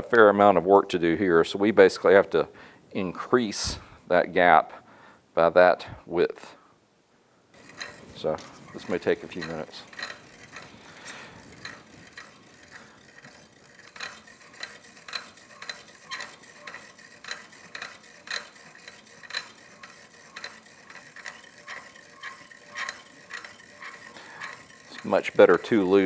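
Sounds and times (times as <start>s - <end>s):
hand-cranked filer grinding clicks: 7.6s - 26.0s.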